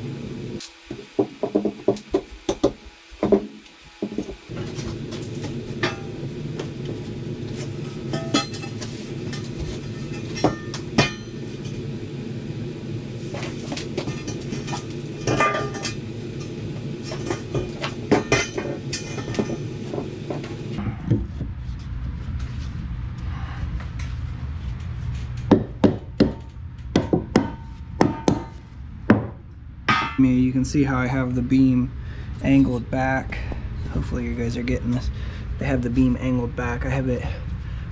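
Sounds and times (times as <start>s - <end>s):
low hum: 4.2s - 37.9s
steel beam clanking: 8.0s - 11.8s, 29.9s - 30.4s.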